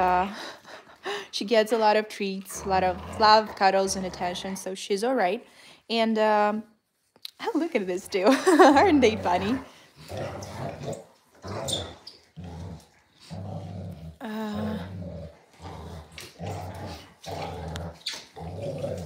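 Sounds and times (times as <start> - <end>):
dogs growling in play: 1.8 - 4.7, 8.0 - 19.0.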